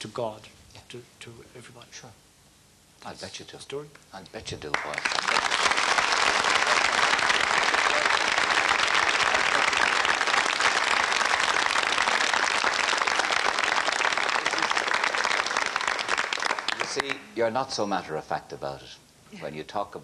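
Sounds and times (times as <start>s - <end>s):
audience applauding: 4.7s - 17.3s.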